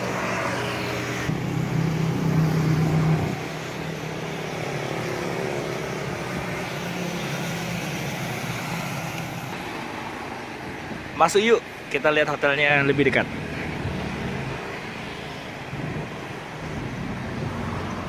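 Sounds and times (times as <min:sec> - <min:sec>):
passing vehicle engine hum: 0:00.0 - 0:10.6
traffic noise: 0:00.0 - 0:18.0.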